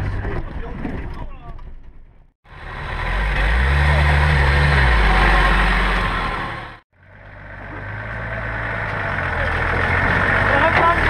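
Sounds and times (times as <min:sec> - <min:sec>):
engine idling: 0:02.5 - 0:11.0
engine pulling under load: 0:02.5 - 0:11.0.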